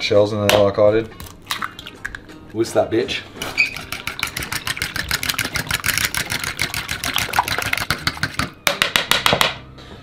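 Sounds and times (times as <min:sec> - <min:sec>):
fork beating eggs in plastic bowl: 0:03.4 - 0:08.6.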